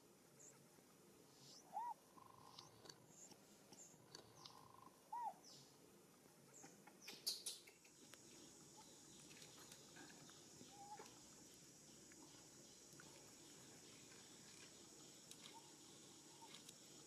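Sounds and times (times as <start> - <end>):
faint high-pitched whine: 0.0 - 17.0
bird chirps: 1.4 - 5.7, 6.5 - 16.7
arched bird call: 1.6 - 2.7, 4.4 - 5.4.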